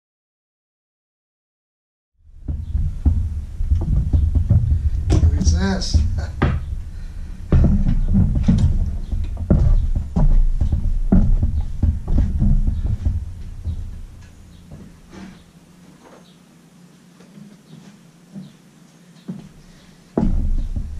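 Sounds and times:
dull thumps and knocks: 2.3 - 15.5, 19.3 - 20.9.

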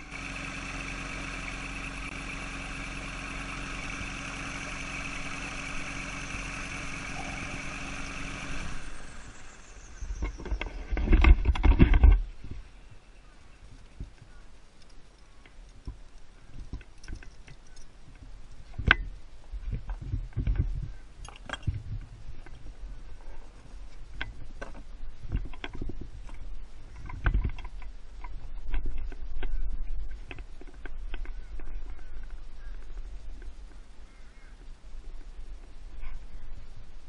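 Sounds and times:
wind rumbling on microphone: 7.2 - 14.7, 15.3 - 37.0.

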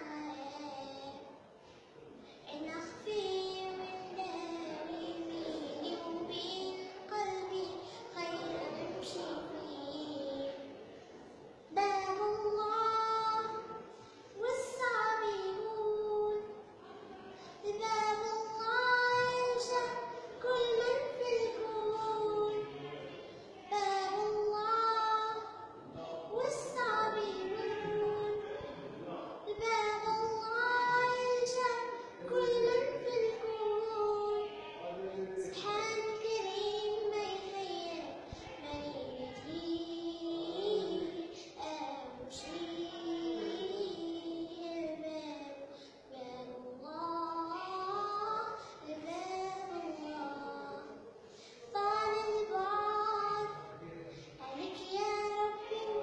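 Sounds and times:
girl singing: 0.0 - 1.3, 2.4 - 10.8, 11.7 - 16.7, 17.3 - 22.8, 23.6 - 28.8, 29.5 - 34.7, 35.4 - 56.0.

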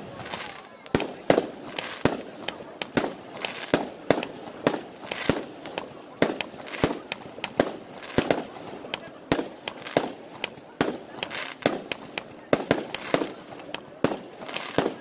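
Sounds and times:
fireworks bangs with crackling: 0.0 - 15.0.

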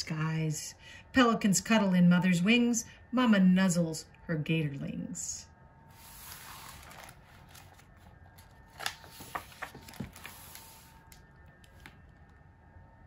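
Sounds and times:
book page turning: 6.0 - 12.3.

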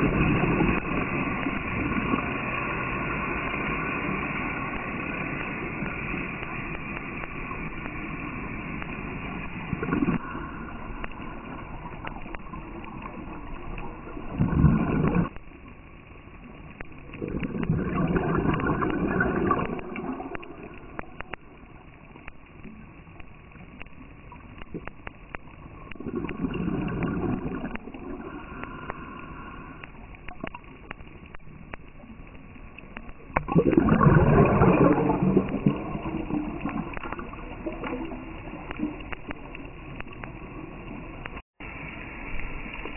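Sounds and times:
gurgling exhaled bubbles: 0.0 - 15.4, 16.8 - 21.8, 23.8 - 31.4, 33.0 - 41.4.

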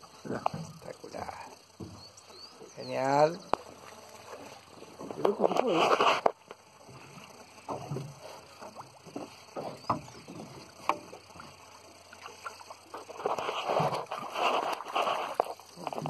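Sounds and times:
small waves lapping against hull: 3.6 - 16.0.

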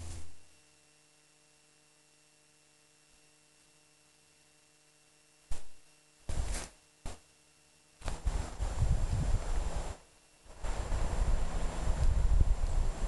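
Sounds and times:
faint steady hum: 0.0 - 13.0
wind buffeting microphone: 8.2 - 10.0, 10.6 - 13.0.

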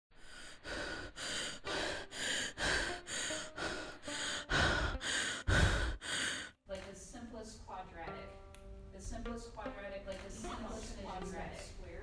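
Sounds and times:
woman breathing fast and heavily: 0.1 - 6.6.

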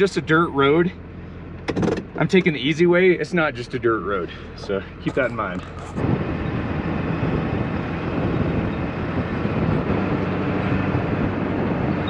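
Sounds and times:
diesel truck engine running: 0.0 - 12.0
wind buffeting microphone: 5.0 - 12.0.

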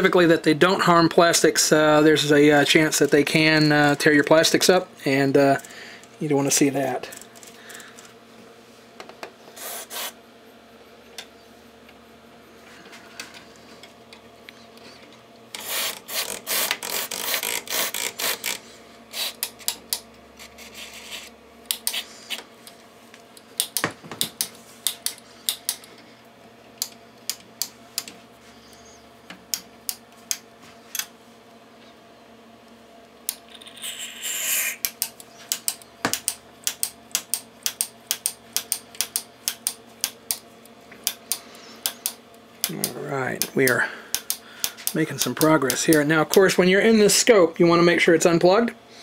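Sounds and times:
rotary switches clicking: 23.4 - 25.9, 34.8 - 40.4, 41.0 - 46.6.

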